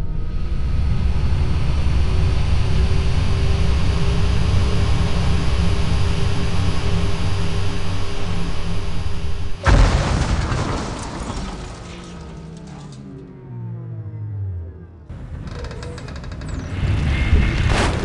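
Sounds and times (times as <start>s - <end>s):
deep spacecraft drone: 0.0s - 18.0s
sudden loud blast: 9.6s - 13.0s.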